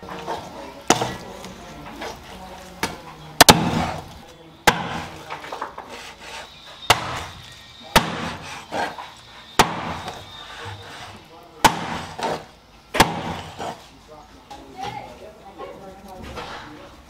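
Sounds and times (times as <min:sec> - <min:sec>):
cleaver chopping fish on board: 0:02.8 - 0:04.0, 0:04.7 - 0:05.2, 0:06.9 - 0:07.3, 0:08.0 - 0:08.4, 0:09.6 - 0:10.2, 0:11.6 - 0:12.4, 0:13.0 - 0:13.5.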